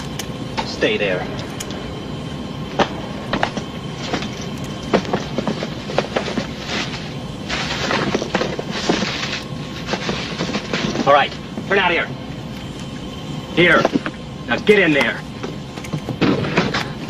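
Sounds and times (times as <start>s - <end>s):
airliner cabin hum: 0.0s - 17.0s
footsteps: 2.7s - 11.7s.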